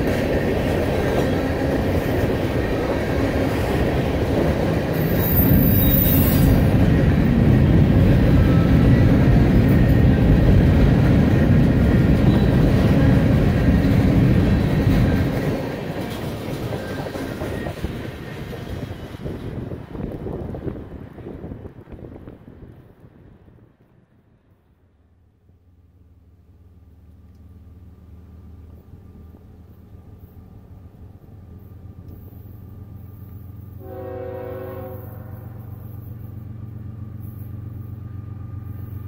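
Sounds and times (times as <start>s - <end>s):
freight train wheels clattering: 0.0s - 22.5s.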